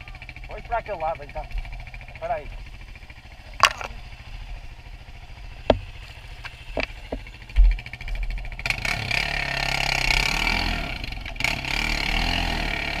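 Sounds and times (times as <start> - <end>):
quad engine: 0.0 - 13.0
knocks and thump on rocks: 3.6 - 4.0, 5.6 - 7.8.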